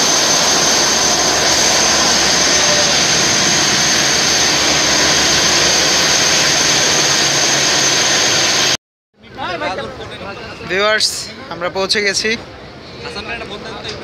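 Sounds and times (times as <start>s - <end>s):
diesel engine running: 0.0s - 8.7s
high engine whine: 0.0s - 8.8s.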